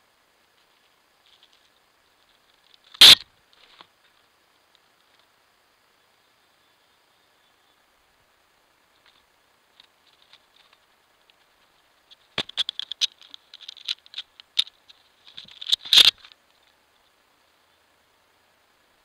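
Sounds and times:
squirrel claws scrabbling on bark: 9.0s - 16.4s.

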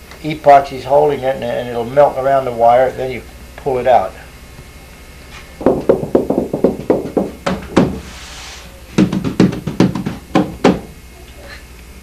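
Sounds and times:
knuckles knocking on wood hull: 5.6s - 8.0s, 9.0s - 10.9s.

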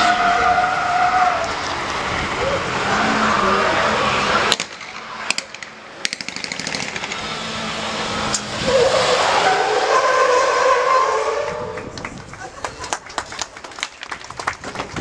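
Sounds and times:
car engines running: 0.0s - 15.0s
tyres squealing: 8.5s - 11.3s.

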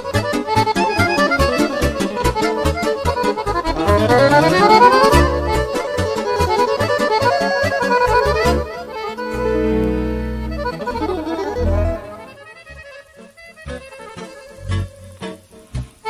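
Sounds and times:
accordion playing fast runs: 0.0s - 12.6s.

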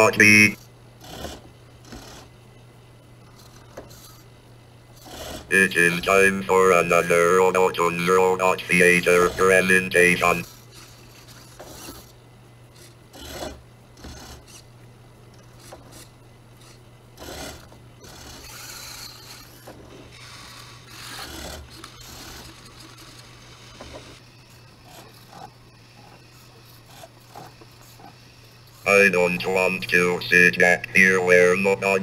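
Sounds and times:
robot motors whirring: 0.0s - 2.3s, 3.2s - 4.3s, 8.6s - 14.7s, 15.3s - 28.9s
steady low hum: 0.0s - 32.0s.

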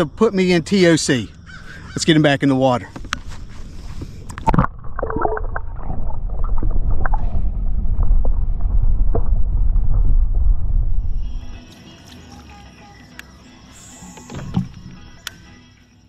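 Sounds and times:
muffled underwater rumble: 3.3s - 11.7s
splash into water: 4.4s - 7.4s.

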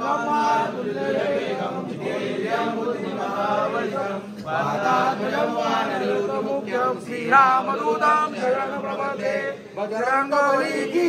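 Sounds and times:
group chanting a hymn in unison: 0.0s - 11.0s.

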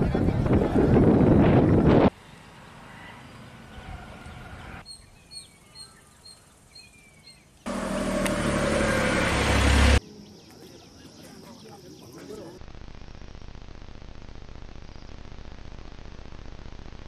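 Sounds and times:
faint bird chirps: 2.2s - 7.6s.

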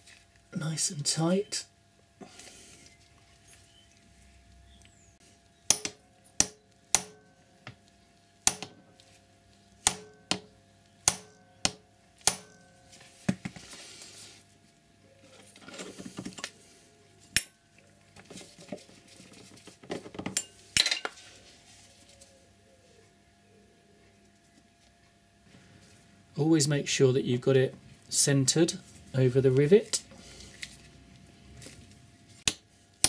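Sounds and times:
hammer tapping metal punch: 5.7s - 7.3s, 8.5s - 8.8s, 9.8s - 12.8s.

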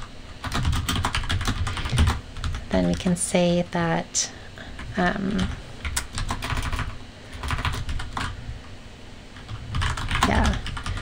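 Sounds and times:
keyboard typing: 0.0s - 3.0s, 4.8s - 8.4s, 9.4s - 11.0s.

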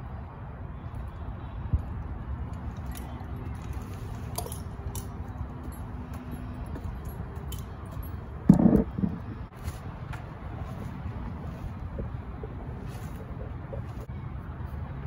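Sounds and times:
low background rumble: 1.9s - 14.2s
metallic clinks of harness hardware: 2.5s - 8.7s.

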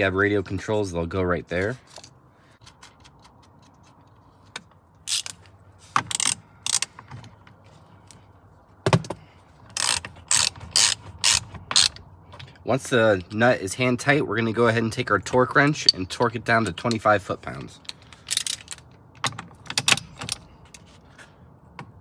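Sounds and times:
ratchet wrench clicking: 5.1s - 5.4s, 6.1s - 6.9s, 9.7s - 12.0s, 18.1s - 18.8s.

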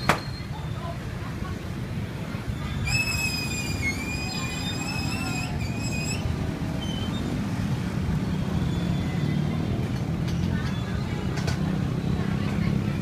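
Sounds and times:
street traffic rumbling: 0.0s - 13.0s
high wavering squeal: 2.5s - 7.4s.

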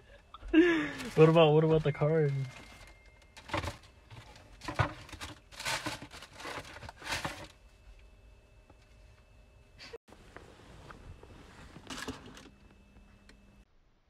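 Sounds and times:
tissue paper rustling in a box: 1.0s - 7.6s, 10.4s - 12.5s.

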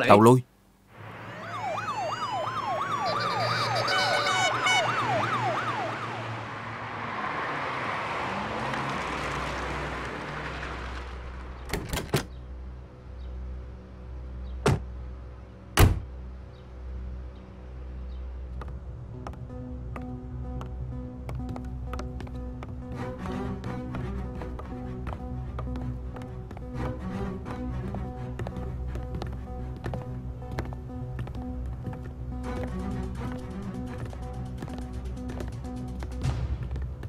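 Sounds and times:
traffic noise: 0.0s - 37.0s
police sirens wailing: 1.0s - 10.5s
car doors slamming: 14.6s - 14.9s, 15.8s - 16.1s.

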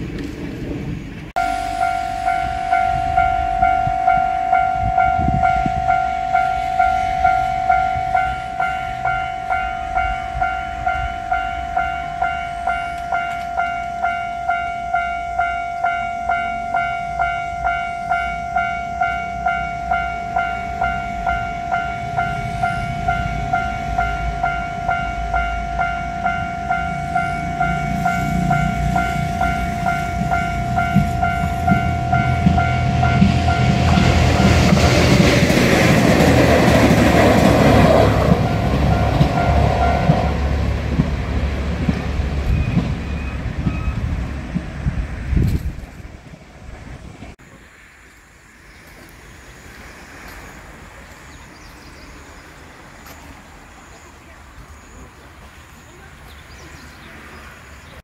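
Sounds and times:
train passing: 0.0s - 58.0s
level-crossing bell clanging: 1.4s - 41.0s.

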